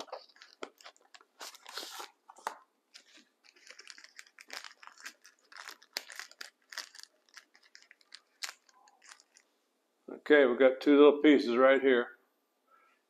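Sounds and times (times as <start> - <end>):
packaging ripping: 0.0 - 9.4
packaging rustling: 0.0 - 9.4.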